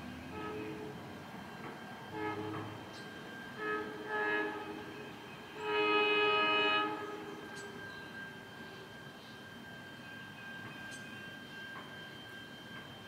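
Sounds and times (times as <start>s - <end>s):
train horn blasts: 0.0s - 1.2s, 2.0s - 8.6s.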